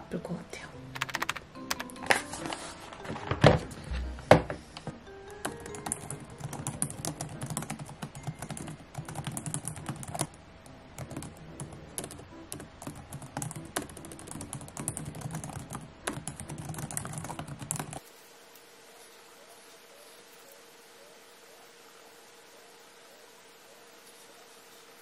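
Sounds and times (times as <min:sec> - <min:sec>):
typing on laptop keyboard: 0:00.9 - 0:02.0, 0:05.4 - 0:10.3, 0:11.0 - 0:18.0.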